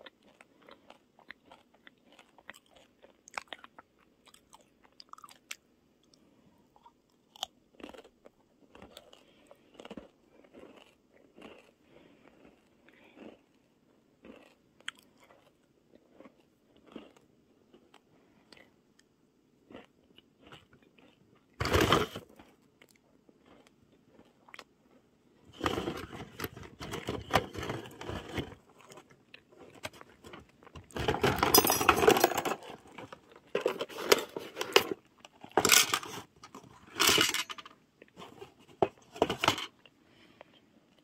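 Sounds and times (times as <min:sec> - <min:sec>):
household objects clattering: 0:21.6 - 0:22.2, 0:25.6 - 0:28.6, 0:29.6 - 0:39.7.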